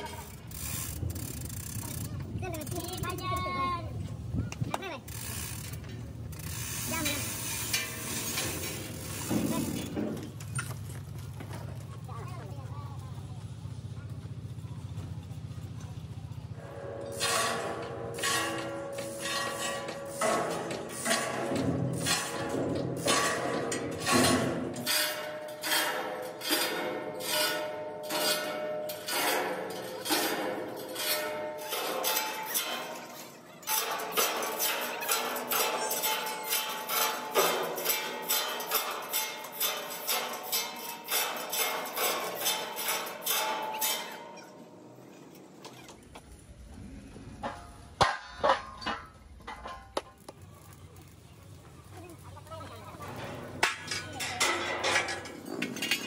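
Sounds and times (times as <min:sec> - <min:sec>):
chain on pulley squeaking and rattling: 0:00.0 - 0:03.7, 0:05.0 - 0:11.2, 0:15.3 - 0:46.2, 0:51.4 - 0:56.0
low workshop hum: 0:00.0 - 0:56.0
hammer striking ringing steel: 0:16.6 - 0:44.7.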